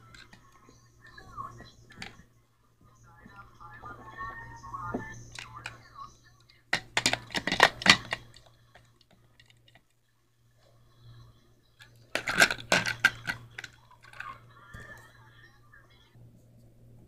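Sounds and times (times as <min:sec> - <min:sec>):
plastic toy trains clattering: 0:00.0 - 0:00.7, 0:01.6 - 0:02.2, 0:05.3 - 0:05.9, 0:06.7 - 0:09.9, 0:11.8 - 0:15.0
faint low hum: 0:00.0 - 0:17.0.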